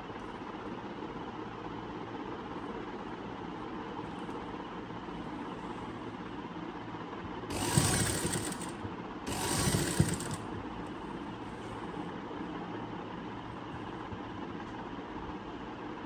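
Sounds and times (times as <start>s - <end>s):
steady low hum: 0.0s - 16.0s
sewing machine stitching: 7.5s - 10.5s.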